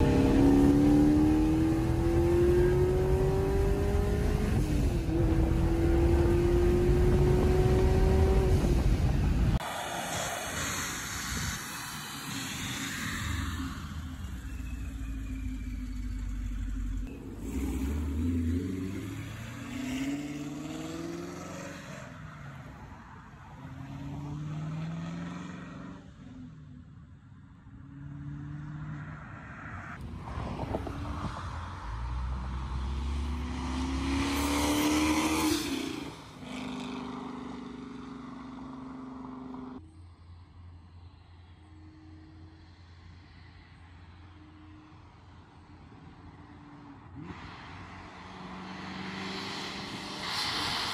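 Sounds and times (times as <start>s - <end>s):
supercharged car engine accelerating: 0.0s - 8.9s, 32.2s - 39.8s
supercharger whine: 0.0s - 20.0s.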